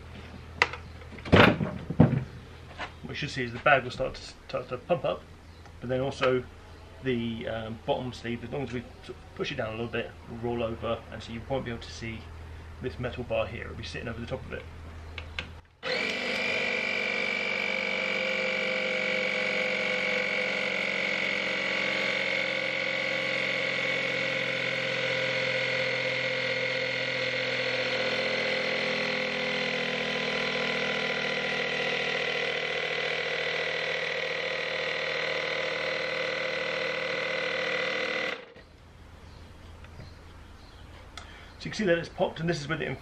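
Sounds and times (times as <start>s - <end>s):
tyre inflator compressor running: 15.2s - 39.4s.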